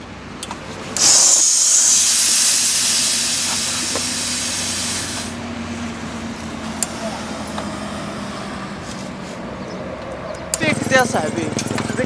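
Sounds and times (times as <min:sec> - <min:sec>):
loud steady hiss: 0:00.8 - 0:05.6.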